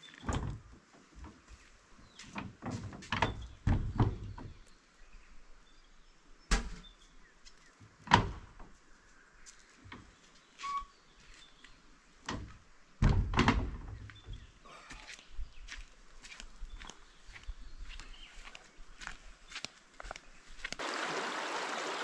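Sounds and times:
knocks and thuds: 2.7s - 4.5s, 12.3s - 14.0s
faint bird chirps: 8.9s - 11.8s.

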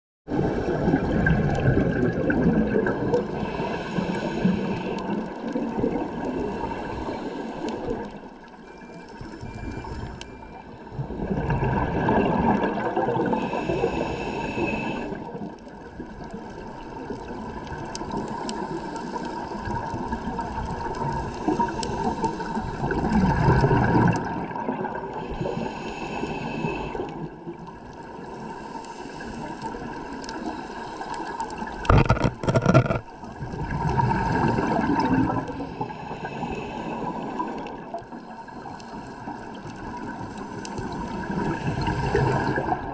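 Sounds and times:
underwater bubbles gurgling: 0.3s - 42.9s
steady watery hiss: 3.1s - 8.3s, 13.2s - 15.6s, 17.5s - 23.8s, 24.5s - 31.9s, 34.2s - 42.9s.

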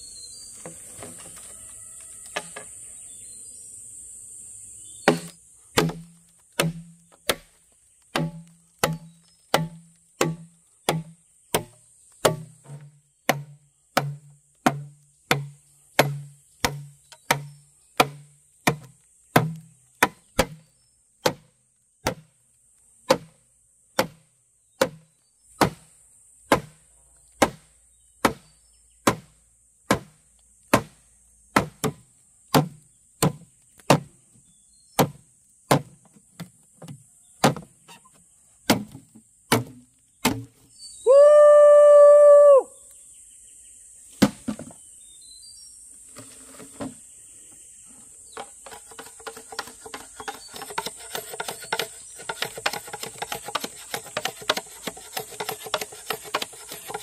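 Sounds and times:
knife chopping on wooden board: 5.1s - 7.5s, 8.2s - 20.6s, 48.7s - 57.0s.

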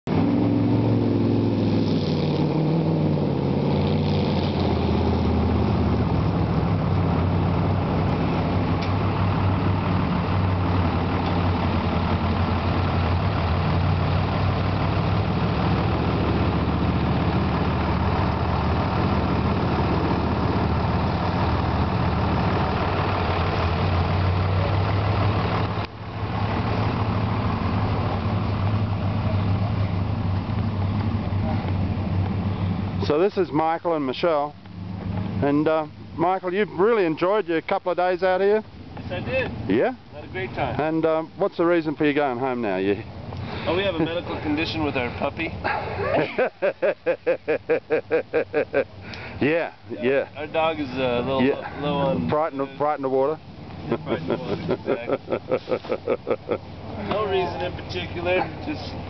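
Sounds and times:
engine idling: 5.5s - 35.3s, 47.7s - 59.0s.

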